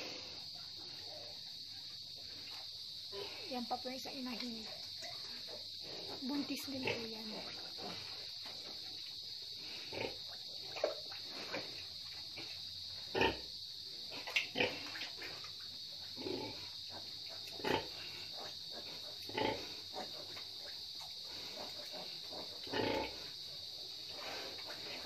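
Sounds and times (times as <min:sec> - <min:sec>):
steady high-pitched hiss: 0:00.0 - 0:25.0
pigs grunting: 0:13.1 - 0:13.5, 0:14.1 - 0:15.2, 0:16.2 - 0:20.4, 0:21.3 - 0:23.4.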